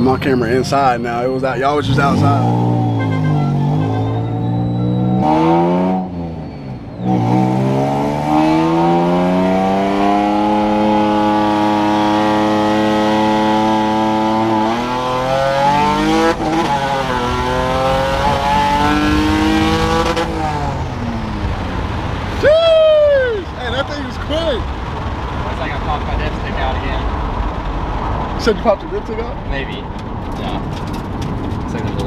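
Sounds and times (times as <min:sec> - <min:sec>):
car engine accelerating through gears: 0:00.0 - 0:22.4.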